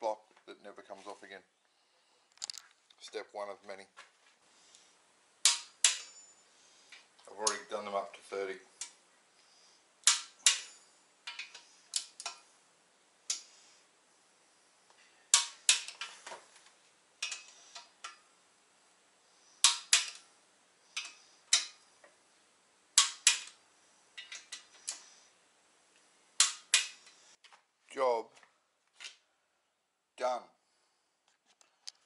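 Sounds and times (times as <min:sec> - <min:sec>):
light clicks of fittings: 0:02.3 - 0:02.8.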